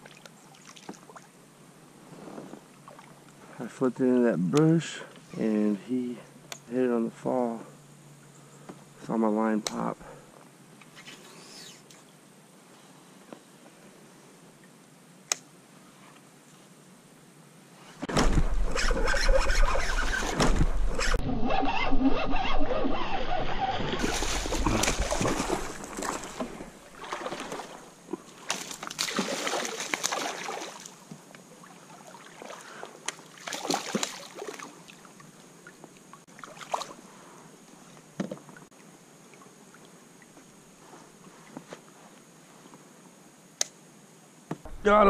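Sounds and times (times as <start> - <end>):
fish splashing at water surface: 24.0 - 27.9, 28.5 - 31.0, 32.0 - 34.7.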